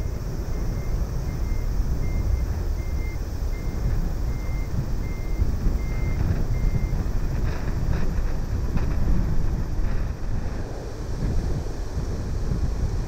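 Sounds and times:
reversing beeper beeps: 0.0s - 7.0s
low outdoor rumble: 0.0s - 13.0s
wind on microphone: 3.4s - 13.0s.

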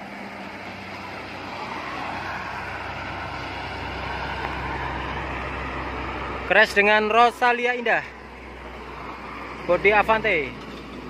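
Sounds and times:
traffic passing on road: 0.0s - 11.0s.

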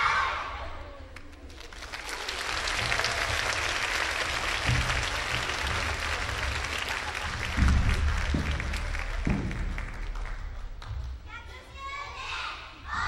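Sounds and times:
children shouting: 0.0s - 0.8s, 11.8s - 13.0s
audience applauding: 1.2s - 11.2s.

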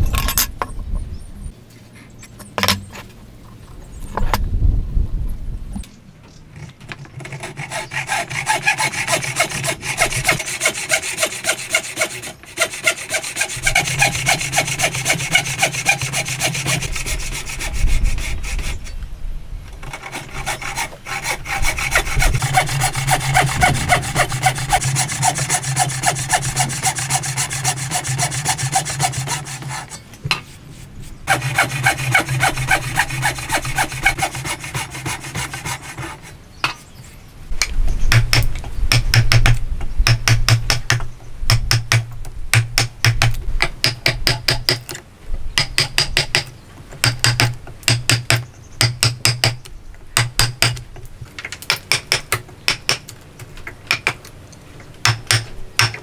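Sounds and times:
hand saw cutting wood: 6.6s - 19.0s, 19.8s - 30.0s, 31.3s - 36.4s.

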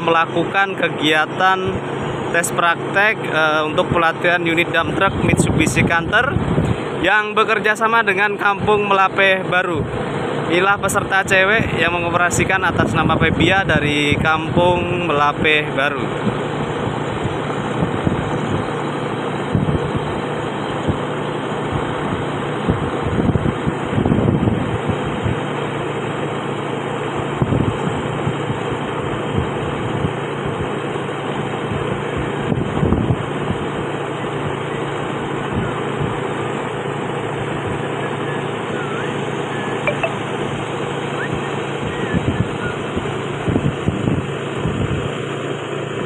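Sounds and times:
vehicle engine running: 0.0s - 46.0s
wind buffeting microphone: 4.8s - 7.0s, 16.0s - 26.0s, 27.2s - 30.8s, 31.6s - 34.6s, 41.3s - 45.2s.

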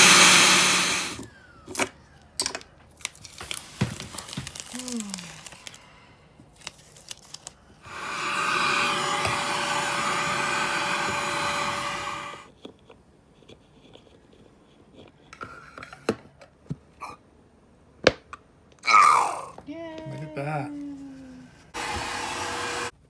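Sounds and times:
small vacuum cleaner running: 0.0s - 1.3s, 7.8s - 12.5s, 21.8s - 23.0s.

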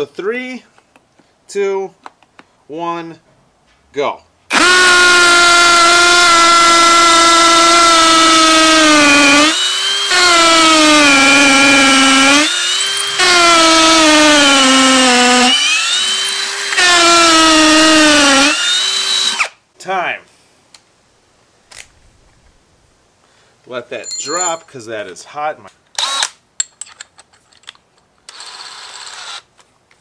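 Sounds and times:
hammer drill boring into concrete: 4.5s - 19.5s, 24.1s - 24.7s, 26.0s - 26.4s, 28.3s - 29.5s.

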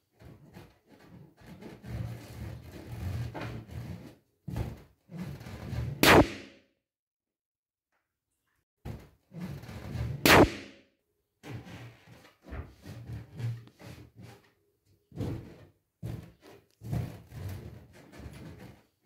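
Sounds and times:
rubbery balloon squeaks and thuds: 0.2s - 6.5s, 8.9s - 10.7s, 15.1s - 19.0s
balloon bursting with a bang: 6.0s - 6.6s, 10.2s - 10.8s.

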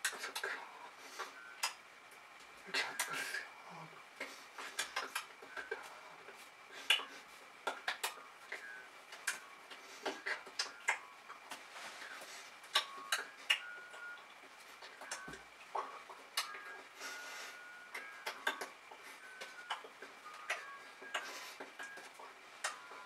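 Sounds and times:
lip and mouth smacks: 1.6s - 1.8s, 4.2s - 5.8s, 6.8s - 11.6s, 12.6s - 14.1s, 17.9s - 18.8s.

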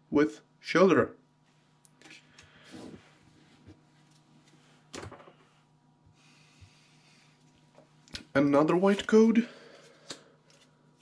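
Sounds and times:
cards being handled: 8.7s - 11.0s.

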